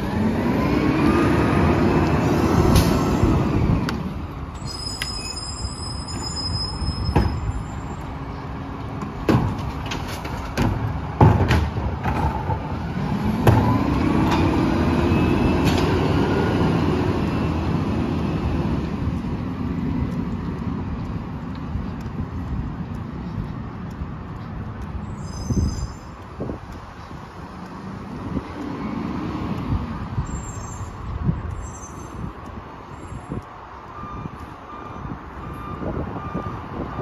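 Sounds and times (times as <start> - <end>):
trash carts banging on hopper: 9.0 - 14.8.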